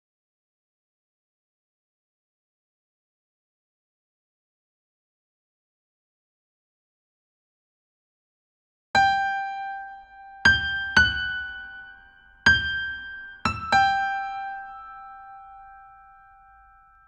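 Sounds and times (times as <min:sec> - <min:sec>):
high piano notes: 0:10.4 - 0:17.0.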